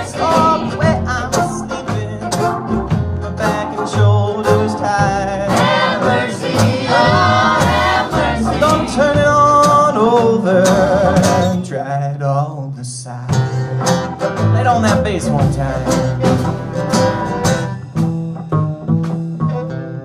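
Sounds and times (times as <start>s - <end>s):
person singing: 0.0s - 13.5s
string band playing blues: 0.0s - 20.0s.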